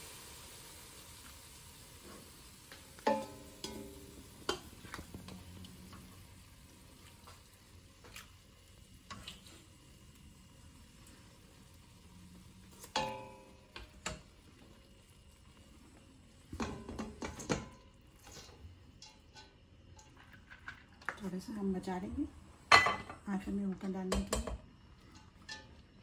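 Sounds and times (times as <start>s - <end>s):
faint hiss: 0.0s - 16.6s
spoon knocking on metal pot: 3.0s - 4.6s, 24.1s - 24.6s.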